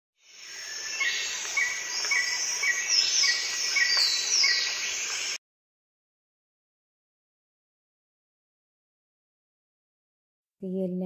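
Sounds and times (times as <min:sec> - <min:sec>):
birds chirping: 0:00.2 - 0:05.4
insects chirring: 0:00.2 - 0:05.4.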